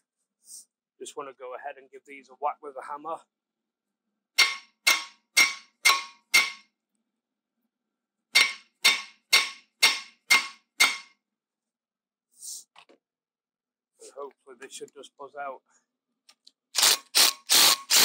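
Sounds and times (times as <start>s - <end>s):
hammer clanging on metal screws: 4.4s - 6.6s, 8.3s - 11.1s.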